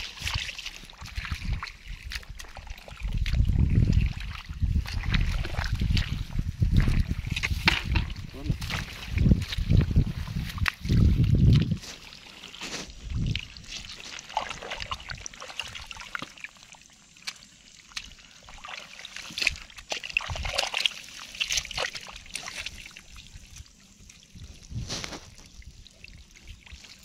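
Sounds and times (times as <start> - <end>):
hands squelching in wet mud: 0.0 - 27.0
muddy water sloshing and trickling: 0.0 - 27.0.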